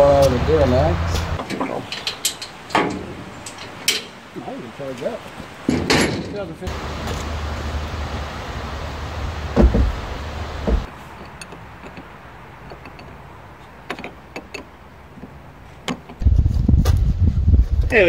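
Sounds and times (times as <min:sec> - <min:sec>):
dull thumps: 0:09.5 - 0:10.9.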